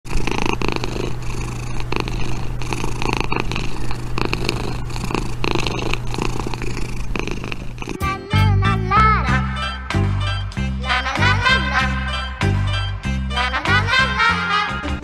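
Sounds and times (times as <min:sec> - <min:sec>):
kitten purring: 0:00.0 - 0:09.2.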